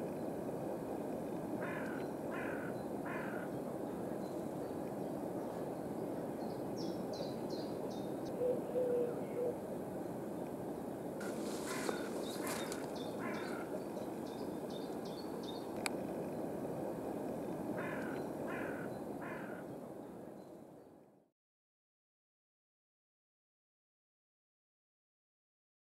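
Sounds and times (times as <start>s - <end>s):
outdoor background noise: 0.0s - 21.3s
crows cawing: 1.6s - 3.5s, 11.2s - 13.9s, 17.8s - 19.7s.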